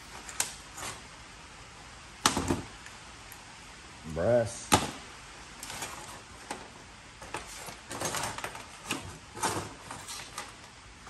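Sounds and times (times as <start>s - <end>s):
scrap metal clinking into bins: 7.3s - 10.6s.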